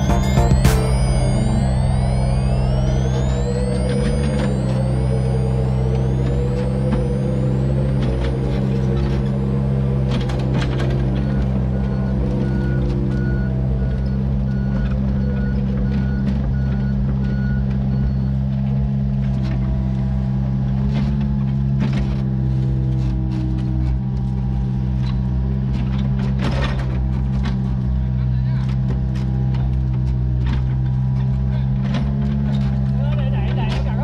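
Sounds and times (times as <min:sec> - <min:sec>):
high beeping alarm: 0:00.0 - 0:17.1
excavator diesel engine running: 0:00.0 - 0:26.2.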